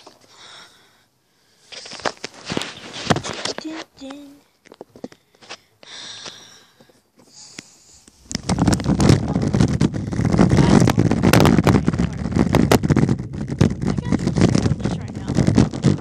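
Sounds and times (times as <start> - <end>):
small wheels rolling over asphalt: 8.3 - 16.0.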